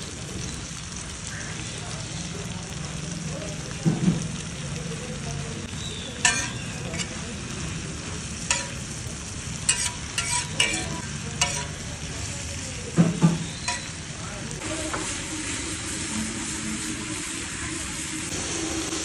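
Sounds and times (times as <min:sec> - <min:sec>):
frying sizzle: 0:00.0 - 0:19.0
spatula scraping iron griddle: 0:06.2 - 0:11.8, 0:13.0 - 0:14.1.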